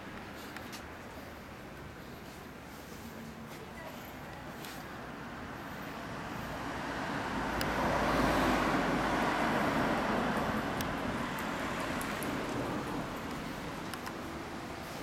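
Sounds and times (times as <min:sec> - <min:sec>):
vehicle passing by: 0:05.1 - 0:15.0.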